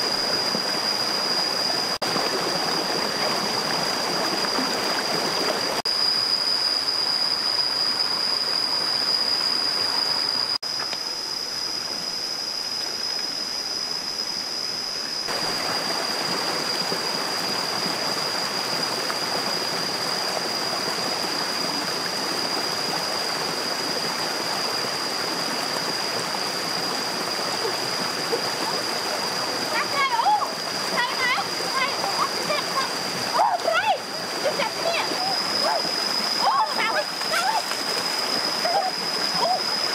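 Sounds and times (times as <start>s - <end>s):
thin high whine: 0.0s - 2.0s, 5.8s - 16.6s, 17.3s - 39.9s
stream rushing over stones: 0.0s - 6.6s, 15.3s - 39.9s.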